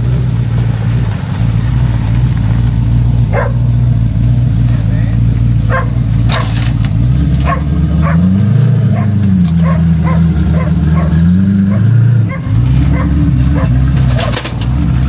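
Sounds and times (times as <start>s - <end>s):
vehicle engine running: 0.0s - 15.0s
dog barking: 3.3s - 3.6s, 5.6s - 6.6s, 7.4s - 14.3s.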